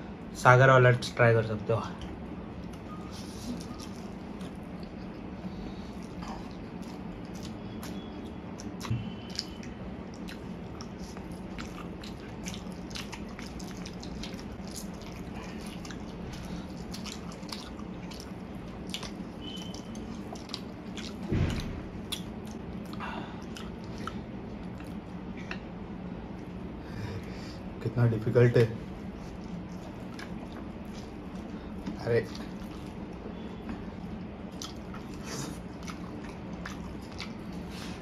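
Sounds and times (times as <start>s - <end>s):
mouth clicks and chewing: 1.9s - 25.7s, 29.0s - 38.0s
loud thump: 21.3s - 22.0s.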